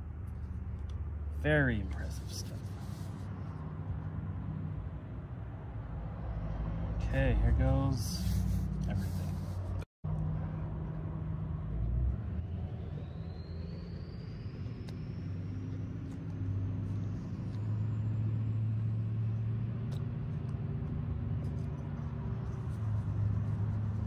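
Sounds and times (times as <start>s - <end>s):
low engine hum: 0.0s - 24.0s
faint thin whine rising: 11.8s - 19.1s.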